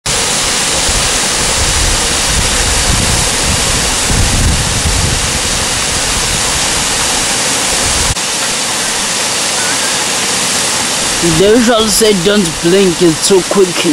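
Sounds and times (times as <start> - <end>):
waterfall rushing: 0.0 - 13.9
wind buffeting microphone: 0.1 - 8.2.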